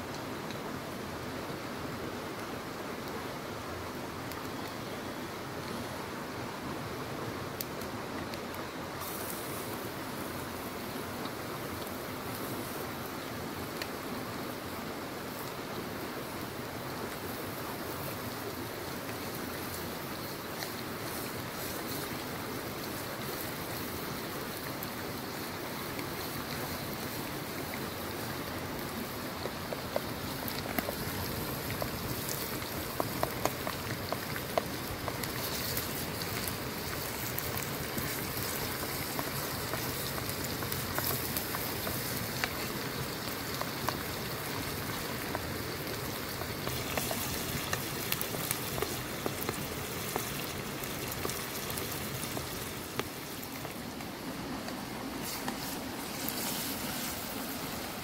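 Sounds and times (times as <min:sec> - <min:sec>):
small pops and crackles: 0:04.2 - 0:04.9, 0:07.5 - 0:58.0
meat sizzling in frying pan: 0:09.0 - 0:11.0, 0:17.0 - 0:53.8, 0:54.6 - 0:58.0.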